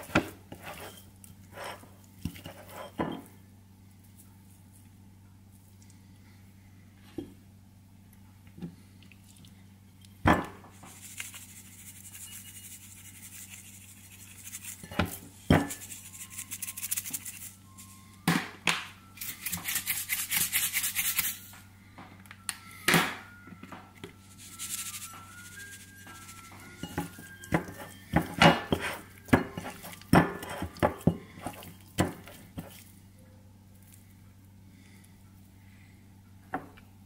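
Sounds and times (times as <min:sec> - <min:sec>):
steady low hum: 0:00.0 - 0:37.0
shaker bottle rattling: 0:24.4 - 0:27.5.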